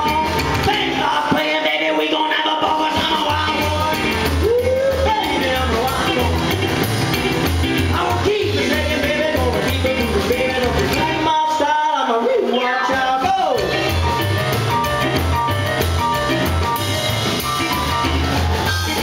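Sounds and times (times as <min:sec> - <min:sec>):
man singing: 0:00.0 - 0:06.8, 0:07.7 - 0:14.2
electric stage piano: 0:00.0 - 0:19.0
pulsing bass line: 0:02.8 - 0:11.3, 0:13.3 - 0:19.0.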